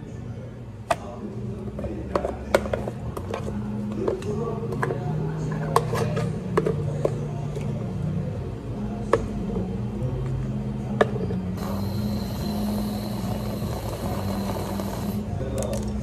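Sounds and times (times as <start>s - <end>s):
whipped cream dispenser hissing: 11.6s - 15.3s.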